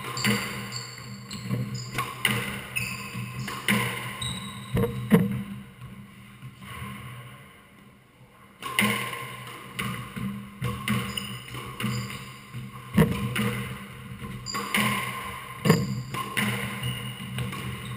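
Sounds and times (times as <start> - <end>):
sneakers squeaking on wooden floor: 0.0 - 5.4, 10.9 - 12.3, 14.4 - 17.9.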